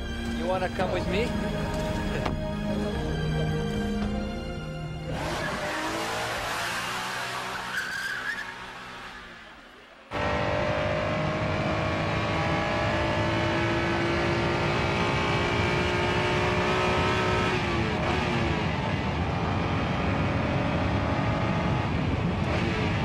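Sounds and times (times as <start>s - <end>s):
car engine at high revs: 5.1s - 9.3s, 10.1s - 23.0s.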